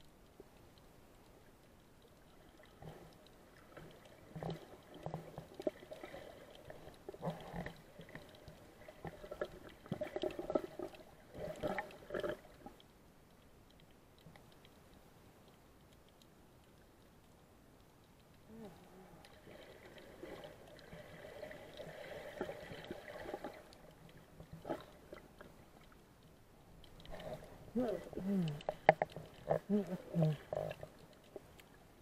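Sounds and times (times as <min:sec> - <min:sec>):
faint steady hiss: 0:00.0 - 0:32.0
underwater gurgling and bubbling: 0:02.6 - 0:12.8, 0:19.1 - 0:25.5, 0:27.0 - 0:32.0.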